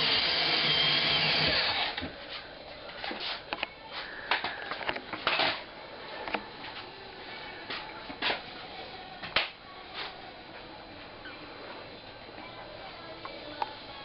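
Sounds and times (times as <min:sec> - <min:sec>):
power drill: 0:00.0 - 0:02.1.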